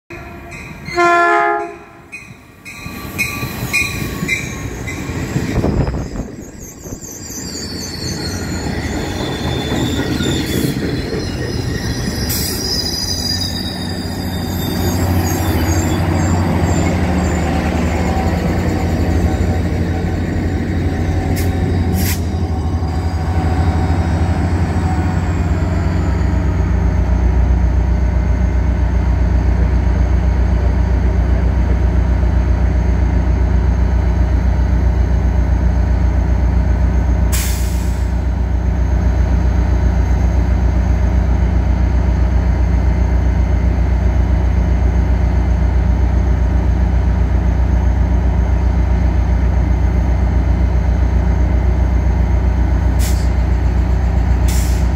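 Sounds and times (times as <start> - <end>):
diesel locomotive rumbling: 0.1 - 54.9
air brakes hissing: 21.2 - 22.6, 37.3 - 38.3, 52.9 - 53.5, 54.4 - 54.9.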